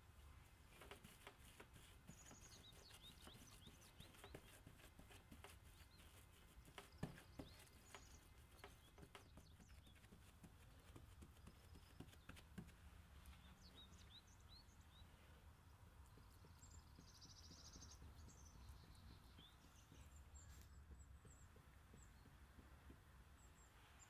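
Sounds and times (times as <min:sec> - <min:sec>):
faint taps and clicks: 0:06.6 - 0:13.4, 0:16.0 - 0:23.4.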